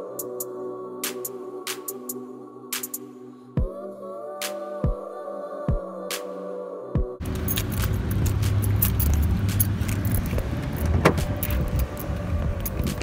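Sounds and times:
keys jangling: 7.2 - 13.0
small clicks and rattles: 7.2 - 13.0
steady low rumble: 7.2 - 13.0.

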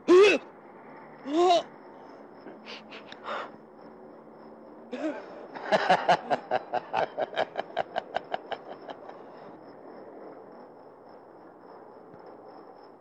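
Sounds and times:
man laughing: 5.0 - 9.5.

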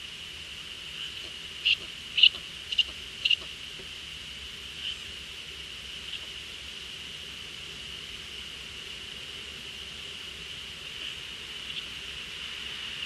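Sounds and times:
owl high-pitched calls: 0.9 - 3.5, 11.0 - 12.0.

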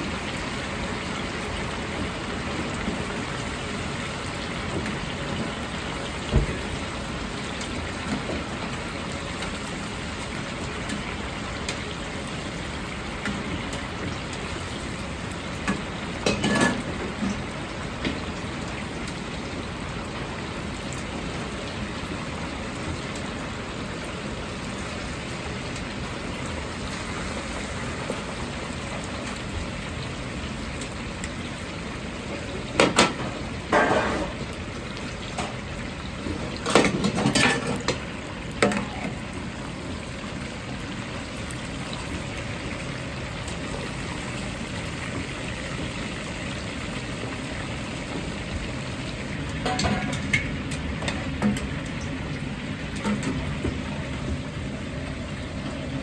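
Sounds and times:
chicken deep-frying in oil: 0.0 - 56.0
metal ladle clanking on wok: 49.6 - 51.2.

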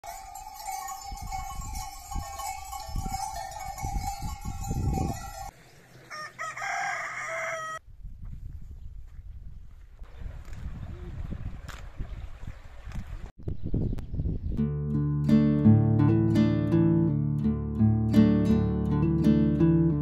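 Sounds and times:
wind buffeting microphone: 0.8 - 5.5, 7.8 - 14.6
rooster crowing: 6.1 - 7.8.

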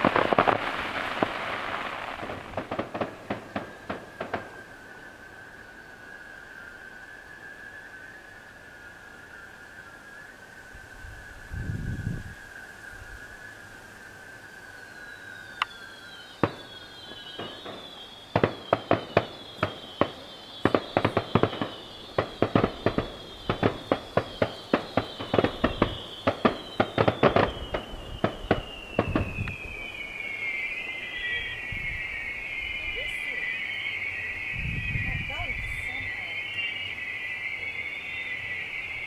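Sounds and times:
firework bangs: 0.0 - 5.8, 15.7 - 39.0
whistling fireworks: 0.0 - 39.0.

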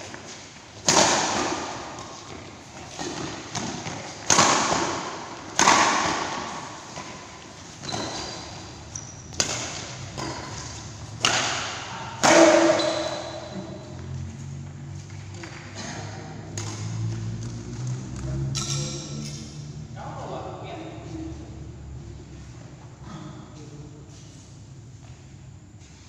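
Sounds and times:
rackets hitting shuttlecock: 0.1 - 14.0, 15.0 - 19.6.

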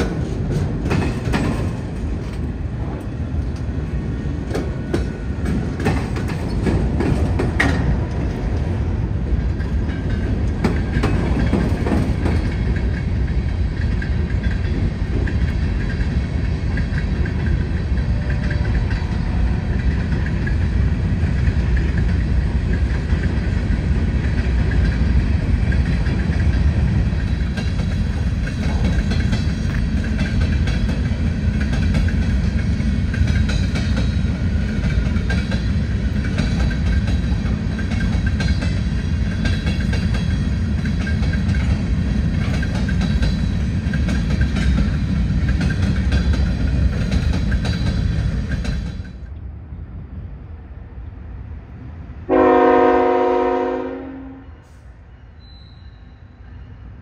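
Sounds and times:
wheels clicking over rail joints: 0.0 - 49.3
freight train rumbling past: 0.0 - 57.0
locomotive air horn blast: 52.3 - 54.8.

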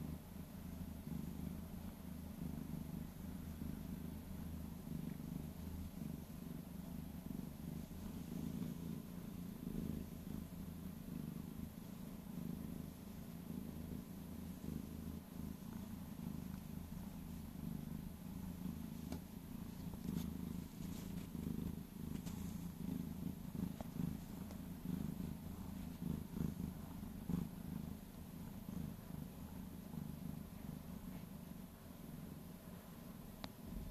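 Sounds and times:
cat purring: 0.0 - 33.9.

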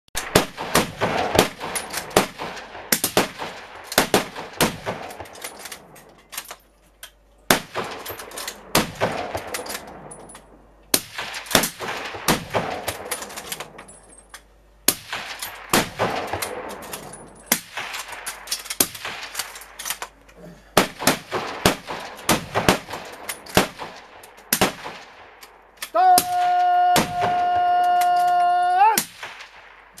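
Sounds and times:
rifle shots echoing: 0.2 - 6.0, 7.5 - 14.1, 14.8 - 28.3, 29.0 - 30.0.

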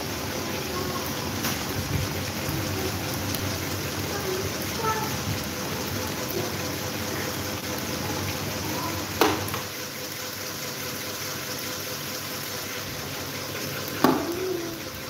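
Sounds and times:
electric fans running: 0.0 - 15.0.

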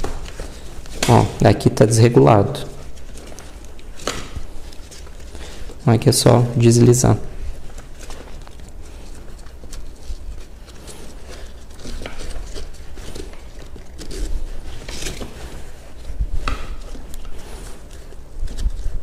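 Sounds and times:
strap and fabric rustling: 0.0 - 19.0.

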